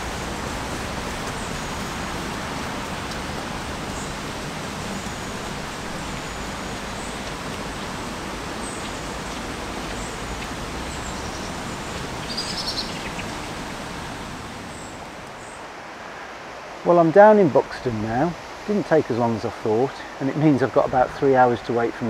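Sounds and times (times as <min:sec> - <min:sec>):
river flowing: 0:00.0 - 0:22.0
small birds chirping: 0:03.0 - 0:13.9.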